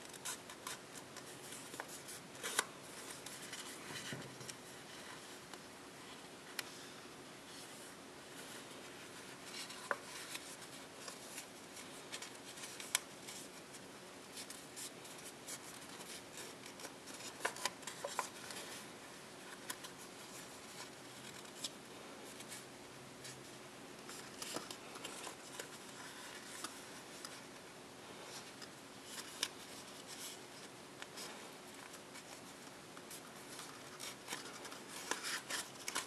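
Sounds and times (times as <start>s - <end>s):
paper crackling: 0.0s - 5.2s, 8.4s - 18.8s, 24.0s - 27.5s, 28.1s - 36.0s
paper rustling and rubbing: 0.0s - 5.4s, 7.5s - 36.0s.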